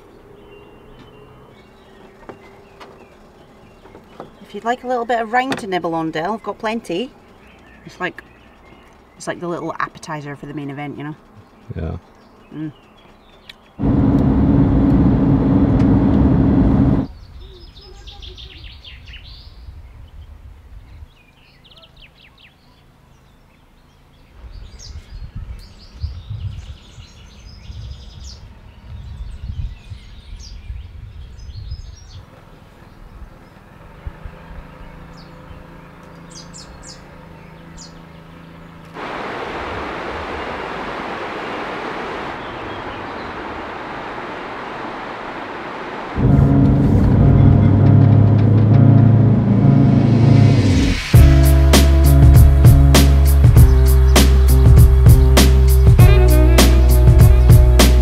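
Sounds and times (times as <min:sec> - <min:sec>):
birdsong: 0:00.0 - 0:14.0, 0:17.0 - 0:46.6, 0:50.5 - 0:58.0
road and engine noise: 0:00.0 - 0:58.0
low rumbles: 0:13.8 - 0:17.3, 0:38.9 - 0:58.0
fast river rushing: 0:39.0 - 0:48.9.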